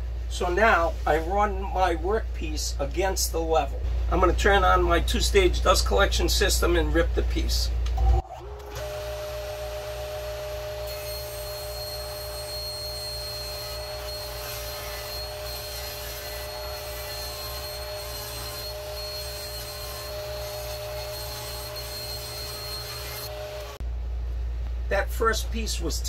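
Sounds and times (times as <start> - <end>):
dust collector humming: 8.4 - 23.8
table saw ripping wood: 8.4 - 23.8.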